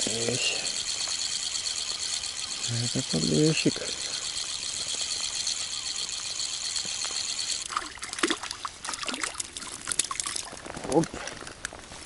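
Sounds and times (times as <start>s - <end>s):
steady high hiss: 0.0s - 7.7s
water trickling and dripping: 7.6s - 10.6s
small water splashes: 7.6s - 11.2s.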